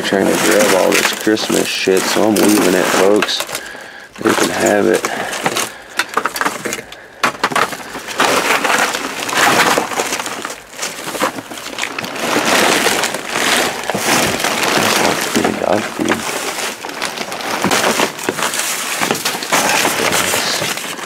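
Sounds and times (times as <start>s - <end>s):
plastic bags and packaging rustling: 0.0s - 21.0s
sharp knocks of items shifted: 4.2s - 21.0s.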